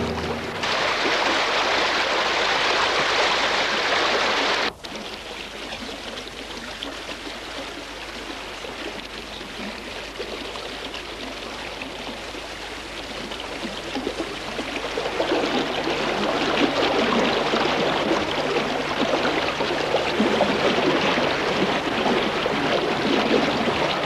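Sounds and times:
steady rushing noise: 0:00.0 - 0:04.7.

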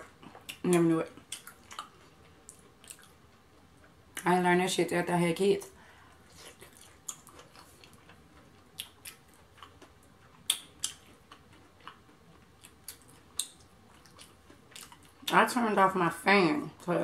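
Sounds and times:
person chewing with mouth smacks: 0:00.0 - 0:04.0, 0:06.1 - 0:15.3.

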